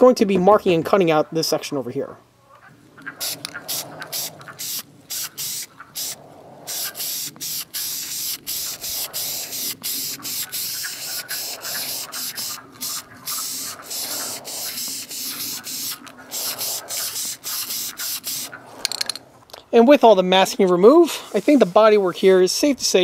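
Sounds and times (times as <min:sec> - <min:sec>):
aerosol can spraying: 0:03.2 - 0:18.5.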